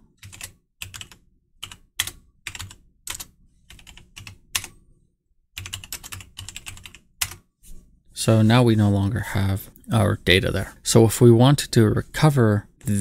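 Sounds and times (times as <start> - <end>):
computer keyboard typing: 0.2 - 4.7, 5.6 - 7.4.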